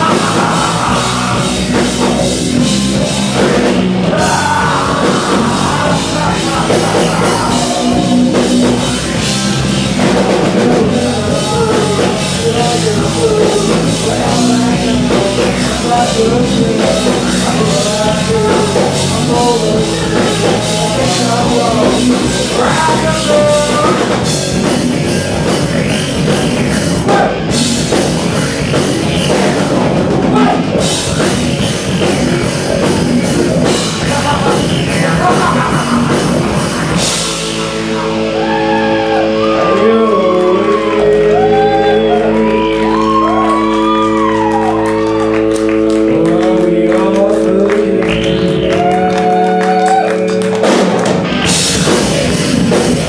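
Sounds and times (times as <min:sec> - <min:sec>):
live rock band playing loud: 0:00.0 - 0:53.0.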